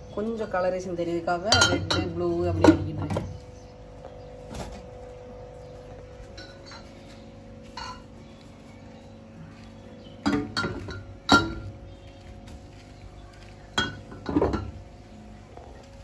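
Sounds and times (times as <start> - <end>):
glass jars clinking: 1.5 - 2.8, 6.3 - 7.0, 7.7 - 8.2, 10.2 - 11.7.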